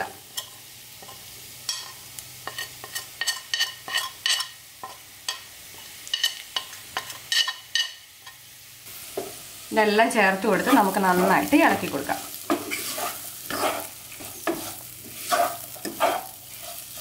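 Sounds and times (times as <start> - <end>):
onions sizzling in oil: 0.0 - 17.0
spoon scraping ceramic plate: 1.8 - 4.5, 12.5 - 17.0.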